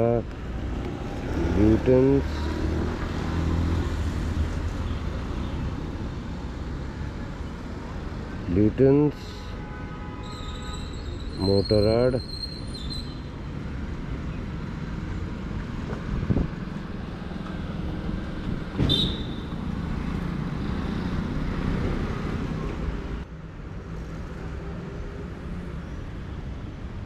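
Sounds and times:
road traffic: 0:00.0 - 0:27.0
vehicle engine rumble: 0:13.3 - 0:26.3.

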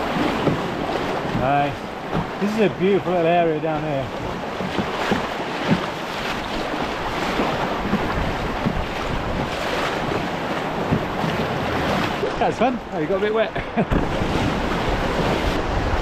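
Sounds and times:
water knocking against hull: 0:00.0 - 0:16.0
whitewater rushing and splashing: 0:00.0 - 0:16.0.

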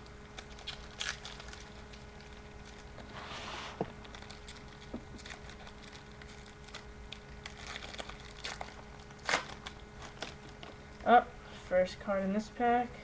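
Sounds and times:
foil wrapper crinkling: 0:00.0 - 0:03.1, 0:03.9 - 0:11.0
faint steady hum: 0:00.0 - 0:13.0.

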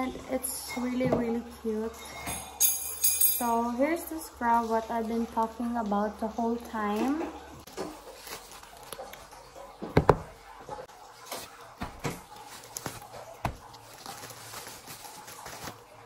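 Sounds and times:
plastic packaging crinkling: 0:07.7 - 0:09.6, 0:11.2 - 0:16.0
boxes knocking: 0:09.9 - 0:10.4.

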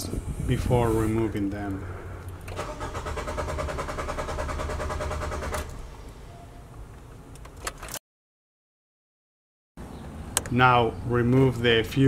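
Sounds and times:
starter motor cranking engine: 0:02.5 - 0:05.8.

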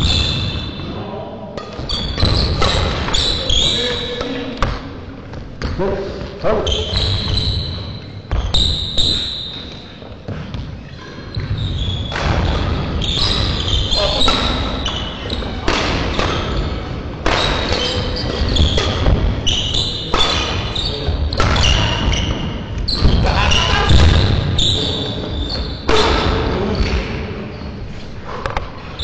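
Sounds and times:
shoes squeaking: 0:01.6 - 0:29.0
racket striking shuttlecock: 0:15.6 - 0:16.6, 0:17.2 - 0:20.7.

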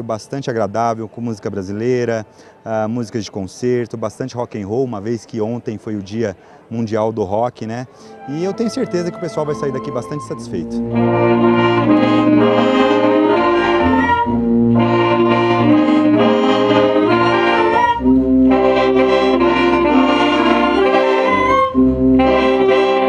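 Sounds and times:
concert band playing: 0:08.0 - 0:23.0.

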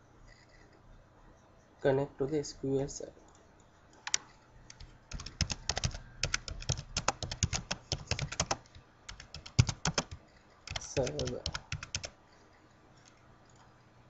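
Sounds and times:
computer keyboard typing: 0:04.0 - 0:12.2.

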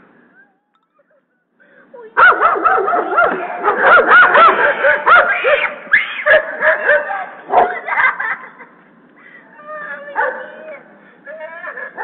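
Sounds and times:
dogs barking: 0:02.2 - 0:08.3, 0:10.2 - 0:10.8.

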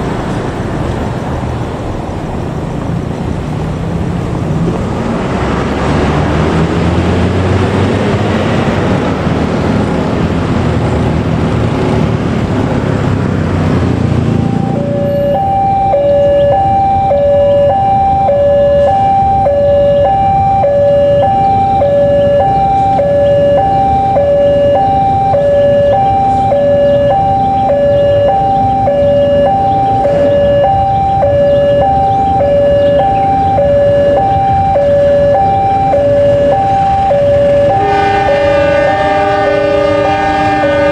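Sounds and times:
train rumble: 0:00.0 - 0:40.9
level crossing warning alarm: 0:14.2 - 0:40.9.

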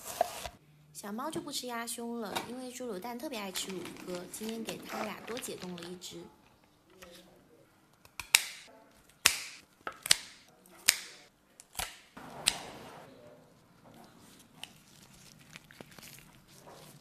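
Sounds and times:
handling raw carcass: 0:13.6 - 0:17.0.

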